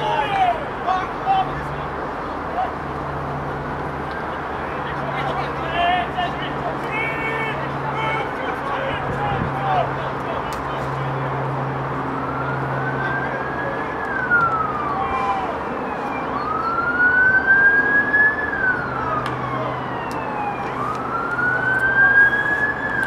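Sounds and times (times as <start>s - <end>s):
siren wailing: 11.1s - 23.0s.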